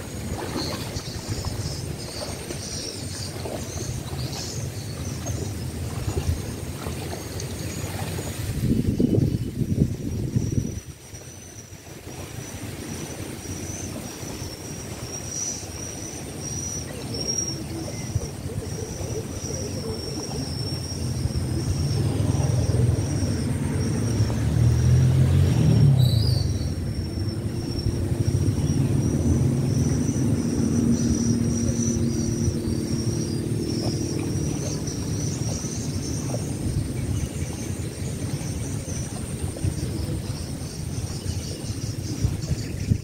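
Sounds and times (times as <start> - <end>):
distant motor humming: 12.6 - 42.4
outdoor rumble: 18.0 - 40.9.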